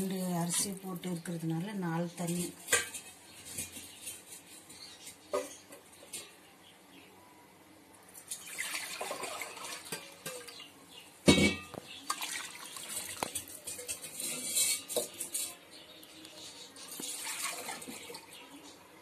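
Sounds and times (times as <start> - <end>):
utensils clattering on metal pot: 2.1 - 6.4, 8.2 - 15.8
water pouring and splashing: 8.2 - 10.7, 11.5 - 14.8, 16.8 - 18.4.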